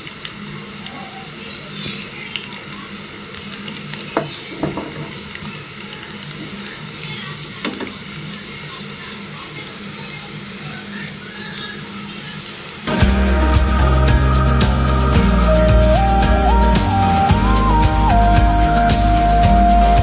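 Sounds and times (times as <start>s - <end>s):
fritters sizzling in oil: 0.0s - 13.3s.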